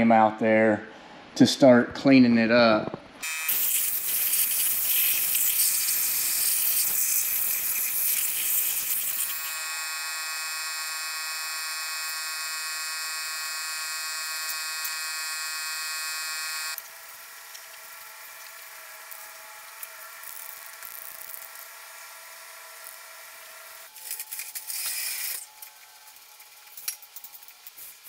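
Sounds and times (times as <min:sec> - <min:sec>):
spray can hissing: 0:03.2 - 0:09.4, 0:27.6 - 0:28.0
high buzzing tone: 0:03.2 - 0:17.3.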